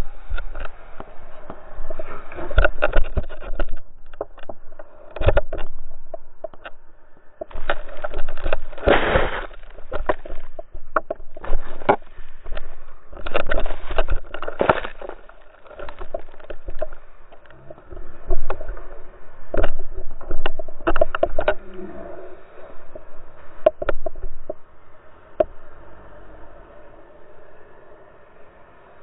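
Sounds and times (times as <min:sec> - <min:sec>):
scraping and sliding through snow: 0:07.5 - 0:10.6
thumps hitting snow: 0:07.5 - 0:12.1.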